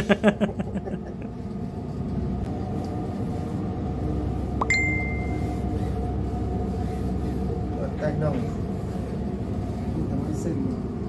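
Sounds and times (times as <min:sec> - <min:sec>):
rising tone into high beep: 0:04.6 - 0:05.4.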